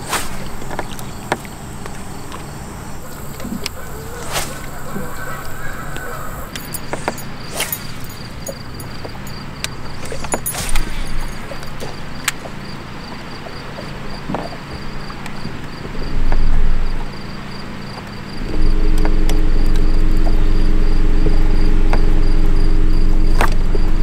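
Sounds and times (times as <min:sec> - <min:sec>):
boat motor humming: 0:00.0 - 0:13.0, 0:18.4 - 0:24.0
insects chirping: 0:00.0 - 0:24.0.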